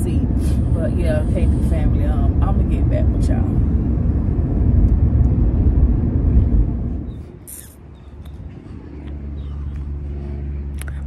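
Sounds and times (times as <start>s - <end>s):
car cabin road noise: 0.0s - 11.0s.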